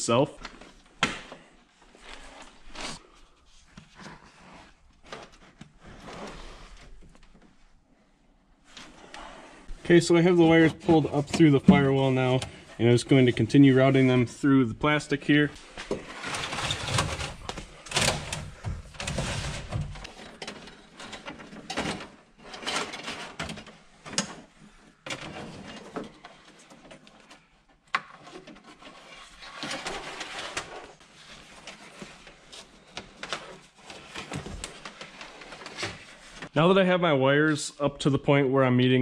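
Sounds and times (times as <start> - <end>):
wire rustling and scraping: 15.3 - 36.5.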